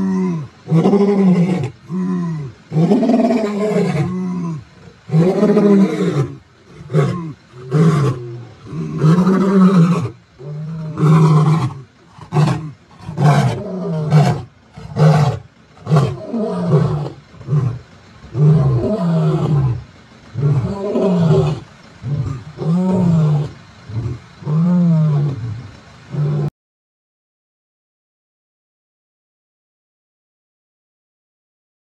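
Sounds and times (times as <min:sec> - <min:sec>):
lions roaring: 0:00.0 - 0:26.5.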